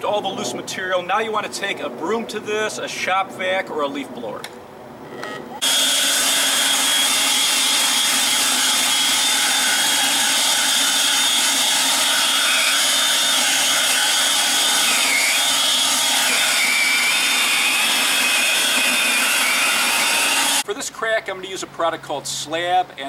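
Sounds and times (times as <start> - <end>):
leaf blower running: 5.6 - 20.6.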